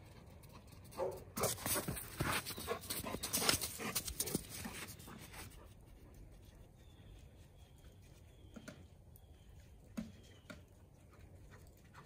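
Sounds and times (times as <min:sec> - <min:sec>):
paws crunching in snow: 0:01.0 - 0:05.9
dog panting: 0:01.4 - 0:05.8.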